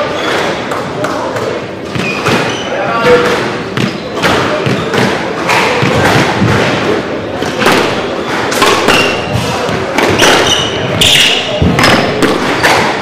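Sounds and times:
squash ball hits: 0:00.2 - 0:13.0
shoe squeaks on wooden floor: 0:01.9 - 0:03.2, 0:03.8 - 0:04.9, 0:10.1 - 0:11.6.

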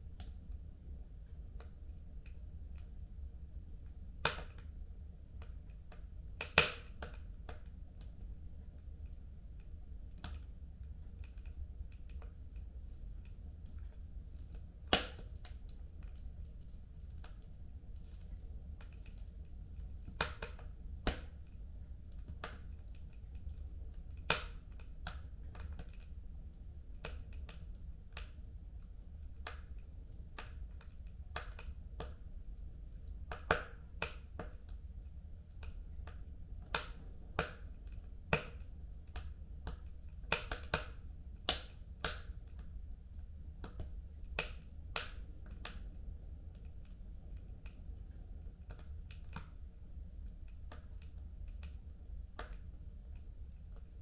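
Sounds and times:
wood fire crackling and popping: 0:01.3 - 0:54.0.

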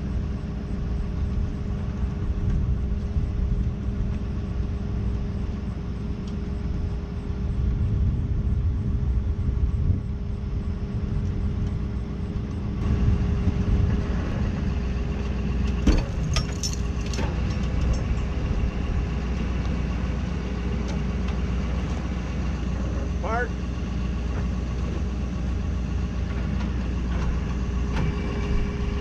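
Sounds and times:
truck engine rumbling: 0:00.0 - 0:29.0.

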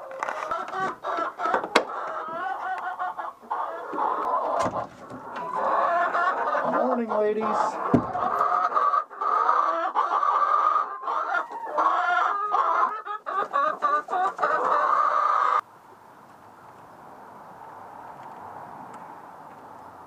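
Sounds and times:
hens clucking and squawking: 0:00.0 - 0:15.6.

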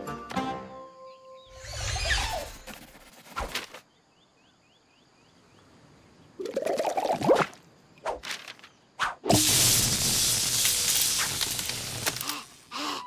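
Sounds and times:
crackling electric zap: 0:09.3 - 0:12.7.

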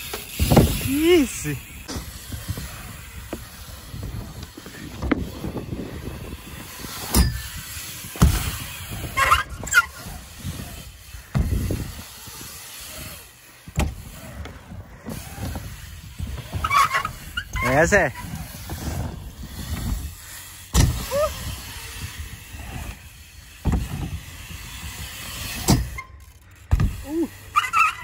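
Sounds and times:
tyres rumbling on wooden ramp: 0:00.0 - 0:26.0
wheels knocking on ramps: 0:01.8 - 0:12.1, 0:22.0 - 0:26.0, 0:26.6 - 0:27.0.

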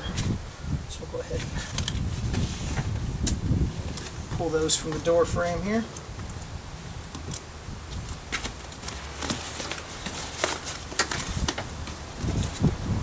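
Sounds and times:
plastic clips clicking and rustling: 0:08.3 - 0:12.6.

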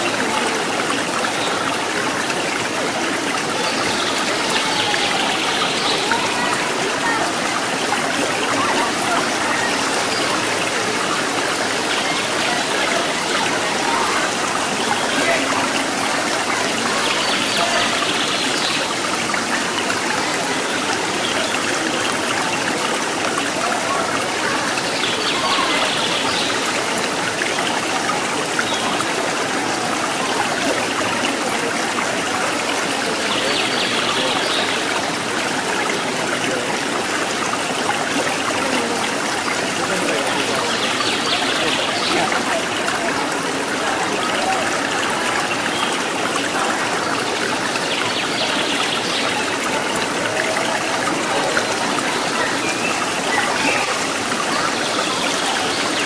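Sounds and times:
crowd voices: 0:00.0 - 0:56.0
water flowing: 0:00.0 - 0:56.0.

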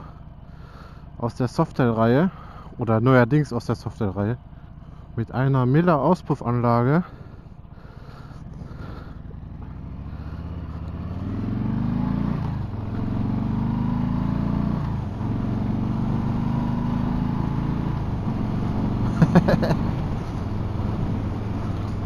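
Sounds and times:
motorcycle accelerating: 0:06.8 - 0:22.0.

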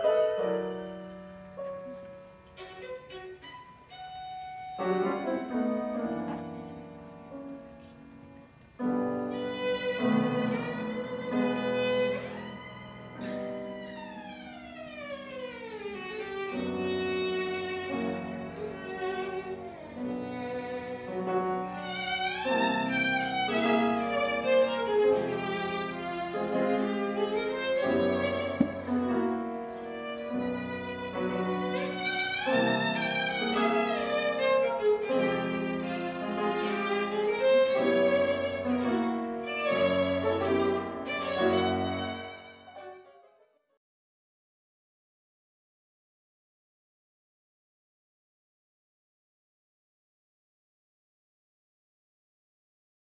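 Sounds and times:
grand piano accompaniment: 0:00.0 - 0:43.5
violin playing quick runs: 0:02.4 - 0:06.8, 0:09.2 - 0:43.3.

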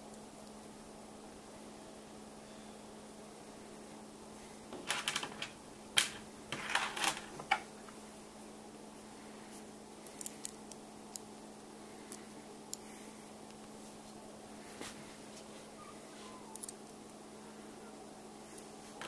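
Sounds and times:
metal and plastic pieces clicking: 0:04.7 - 0:07.6, 0:10.1 - 0:11.2.

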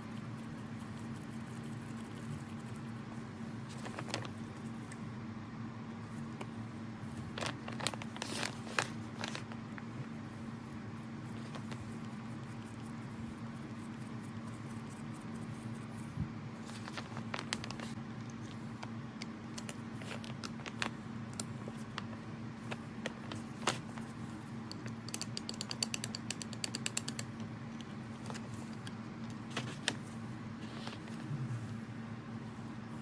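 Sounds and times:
steady low hum: 0:00.0 - 0:33.0
rapid ticks: 0:24.7 - 0:27.5.

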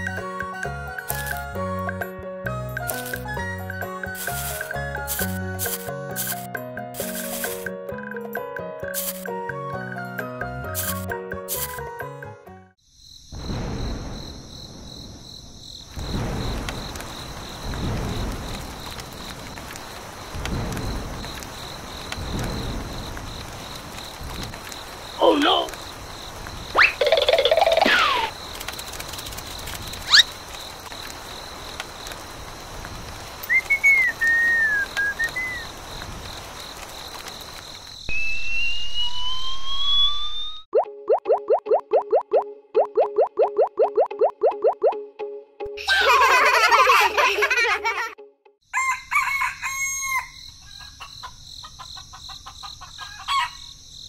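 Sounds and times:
outdoor ambience: 0:00.0 - 0:07.8, 0:12.8 - 0:44.9, 0:45.7 - 0:54.0
crickets chirping: 0:12.8 - 0:40.5, 0:48.7 - 0:54.0
cartoon whistle sound effects: 0:33.5 - 0:35.6, 0:38.1 - 0:41.5
rooster crowing: 0:48.7 - 0:51.2, 0:52.8 - 0:53.7.

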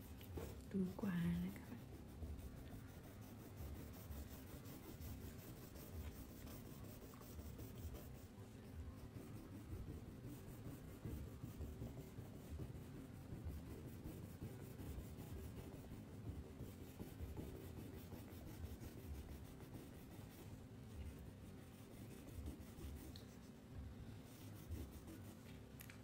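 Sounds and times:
crayon scratching on paper: 0:00.0 - 0:23.6, 0:24.3 - 0:25.5.

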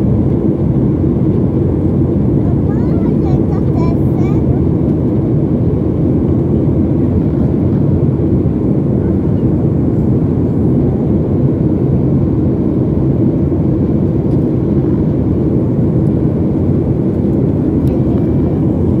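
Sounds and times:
jet engine cabin rumble: 0:00.0 - 0:19.0.

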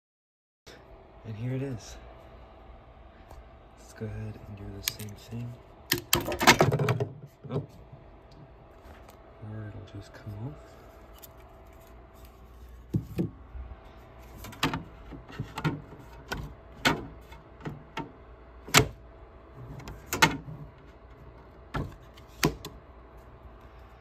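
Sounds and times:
sharp clicks and knocks: 0:05.9 - 0:07.7.

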